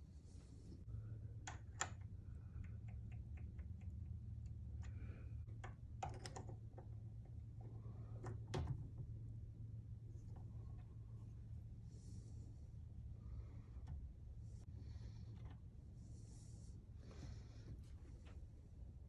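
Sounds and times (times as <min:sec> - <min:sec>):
steady low hum: 0:00.0 - 0:19.0
metal parts clicking and tapping: 0:02.6 - 0:08.8.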